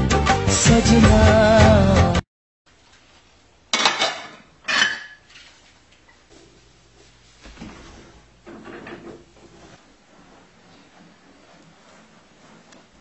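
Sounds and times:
dishes clattering: 3.7s - 5.4s
cloth scrubbing floor: 9.2s - 13.0s.

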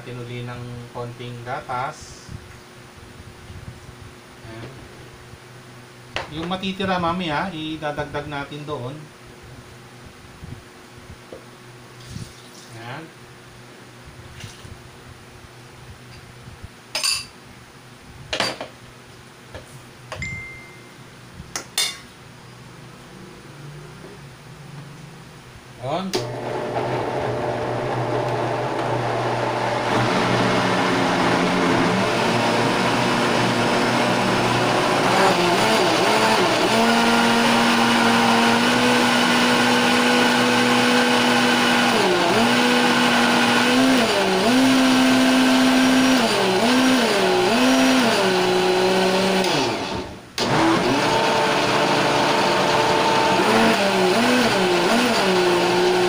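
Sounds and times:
blender running at high speed: 26.2s - 56.0s.

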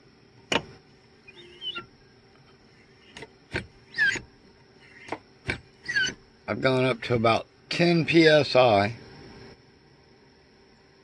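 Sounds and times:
hand pump clicks and squeaks: 1.3s - 1.9s, 3.9s - 6.2s.

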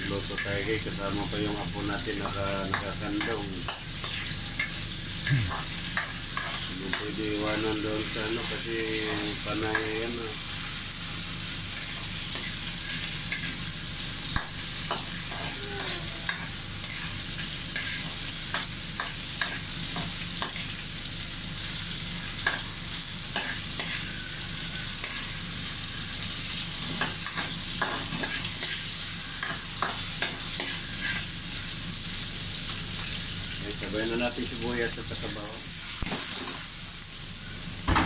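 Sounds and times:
vegetables sizzling in hot oil: 0.0s - 38.0s
spatula scraping a pan: 26.9s - 31.3s.

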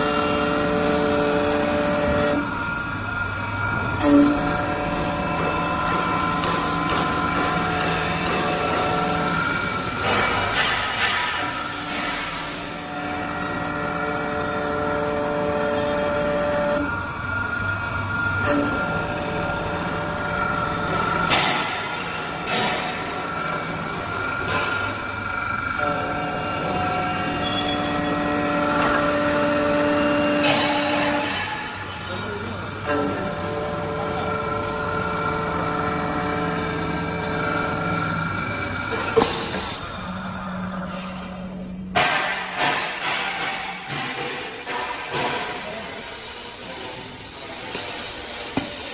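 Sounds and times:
wood lathe whine: 0.0s - 10.2s, 25.0s - 31.4s.

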